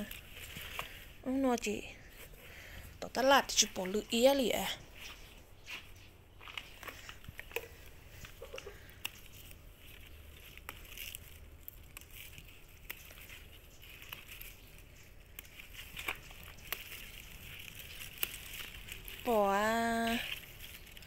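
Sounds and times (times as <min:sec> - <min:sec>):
leaves and stems rustling: 0:00.0 - 0:21.0
small clicks and snaps: 0:06.5 - 0:21.0.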